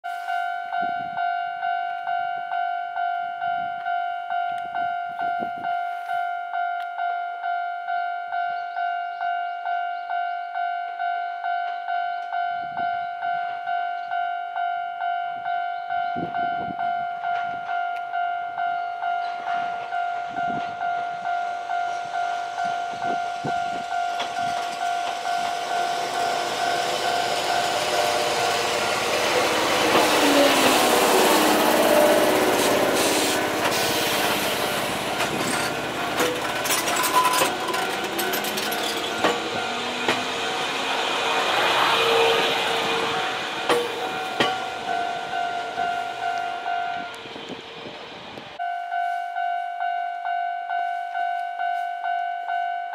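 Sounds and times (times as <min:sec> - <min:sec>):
electric train passing: 0:10.5 - 0:52.6
wheels clacking over rail joints: 0:23.7 - 0:45.8.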